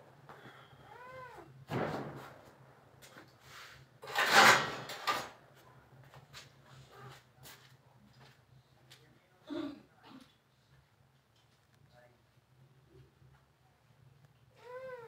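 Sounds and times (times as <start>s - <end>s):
cat meowing: 0.8s - 1.5s, 14.6s - 15.0s
steady low hum: 5.3s - 15.0s.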